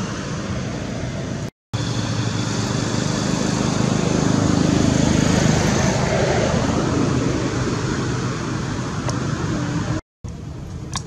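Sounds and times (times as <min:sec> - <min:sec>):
motor humming: 0:01.8 - 0:05.8.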